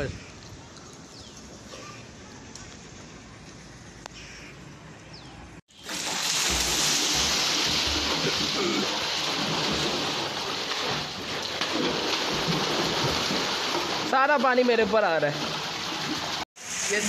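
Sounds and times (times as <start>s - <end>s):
heavy water splashing: 5.7s - 17.0s.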